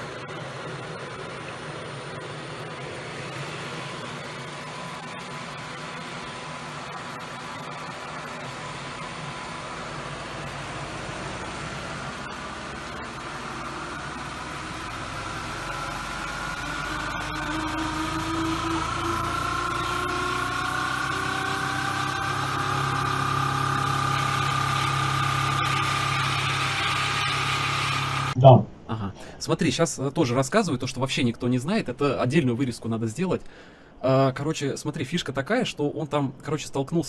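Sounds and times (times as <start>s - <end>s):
turbine whine: 0.0s - 28.4s.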